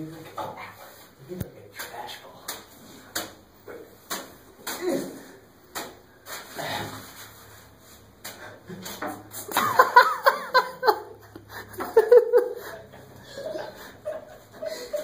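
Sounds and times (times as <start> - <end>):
person giggling: 8.7 - 15.0.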